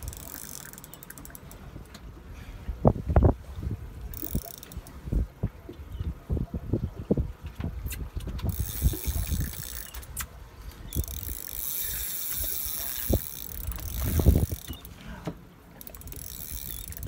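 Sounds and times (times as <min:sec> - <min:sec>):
fishing reel whirring: 0:00.0 - 0:01.8, 0:04.1 - 0:05.0, 0:08.5 - 0:10.2, 0:10.9 - 0:15.0, 0:15.8 - 0:17.0.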